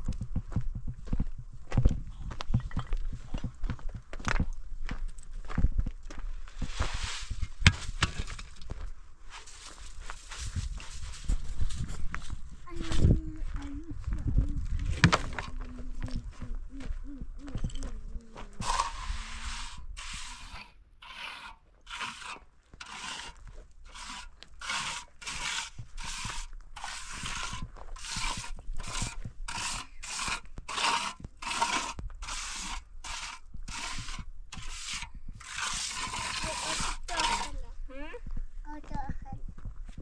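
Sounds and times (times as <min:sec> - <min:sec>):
crunching scraping strokes: 0:06.5 - 0:13.1, 0:18.5 - 0:37.7.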